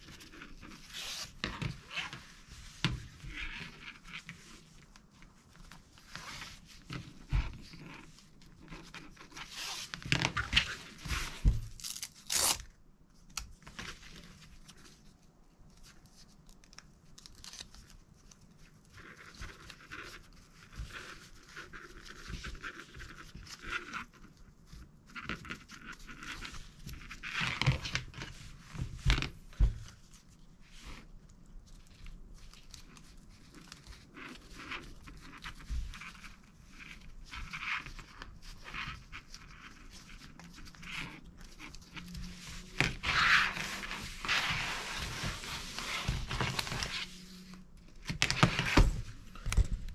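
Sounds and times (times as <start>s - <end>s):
hook-and-loop ripping apart: 11.8s - 12.8s
webbing rustling and scraping: 25.4s - 48.0s.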